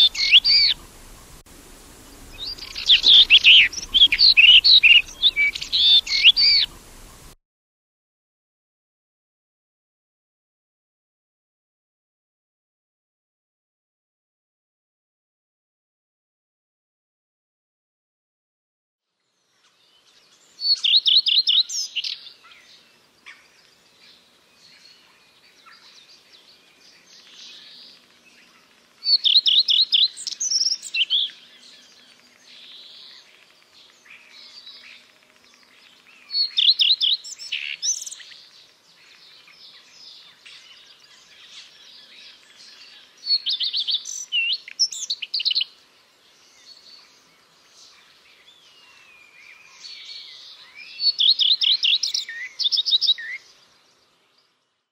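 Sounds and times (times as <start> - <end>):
bird singing: 0.0 - 7.4, 19.2 - 54.9.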